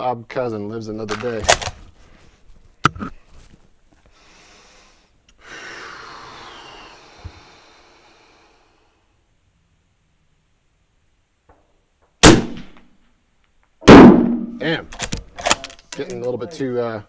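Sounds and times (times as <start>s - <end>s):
person breathing out: 4.1s - 9.1s.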